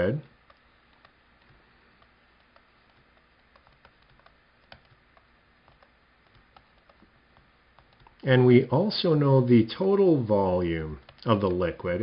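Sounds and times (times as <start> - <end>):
stylus tapping on tablet: 0.4 - 8.2.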